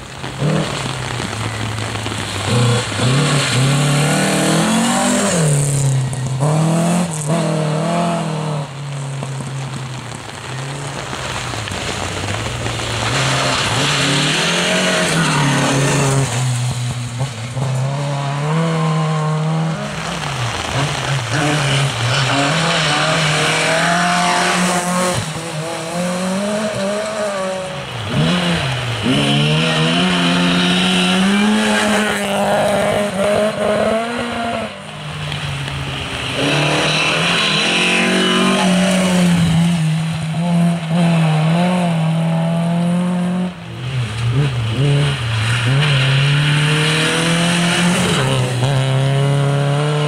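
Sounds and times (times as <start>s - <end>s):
rally car engines revving: 0.0s - 50.0s
tyres hissing on wet road: 0.0s - 50.0s.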